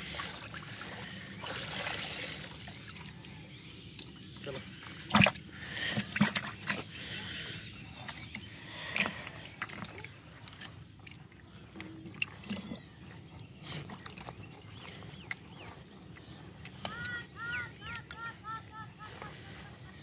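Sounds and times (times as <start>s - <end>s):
water splashing in a bucket: 0.0s - 7.1s, 8.1s - 11.4s, 12.0s - 13.2s.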